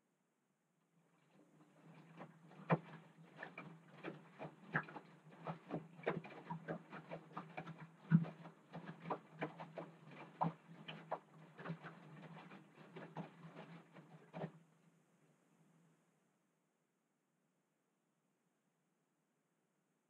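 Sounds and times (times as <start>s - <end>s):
laundry tumbling and splashing: 1.7s - 14.6s.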